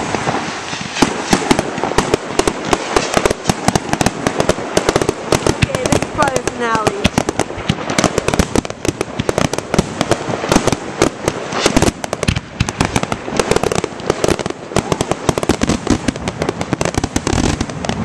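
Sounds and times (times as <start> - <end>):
fireworks bangs and crackling: 0.0 - 18.0.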